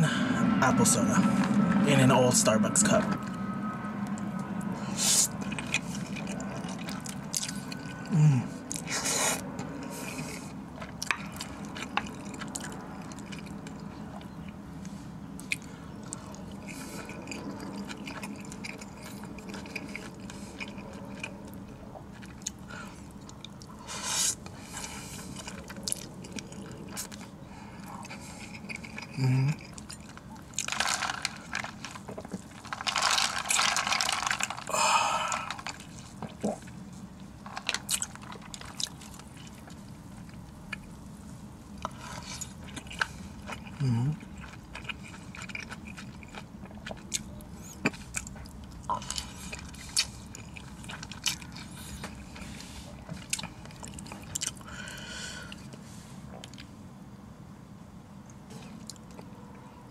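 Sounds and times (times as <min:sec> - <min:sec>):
steady low hum: 0:00.0 - 0:59.9
person chewing: 0:04.1 - 0:41.1, 0:41.7 - 0:56.8
slurping noodles: 0:23.8 - 0:25.5, 0:32.6 - 0:36.6.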